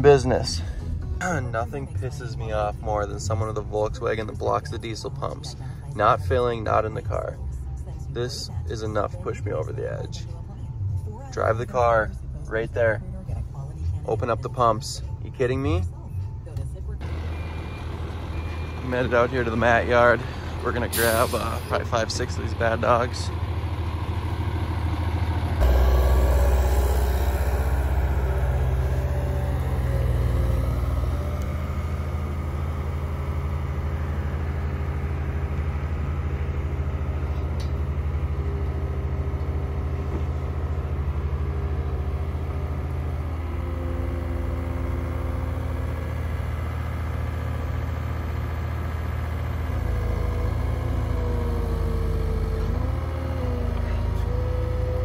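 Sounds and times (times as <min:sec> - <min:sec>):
diesel engine idling: 0:00.0 - 0:55.0.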